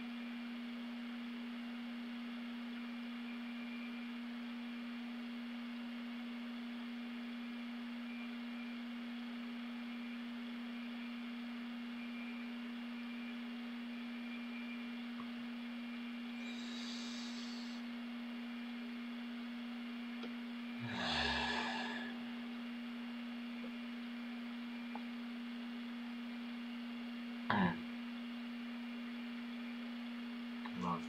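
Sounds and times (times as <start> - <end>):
low steady hum: 0.0 - 31.0
faint hiss: 16.4 - 17.9.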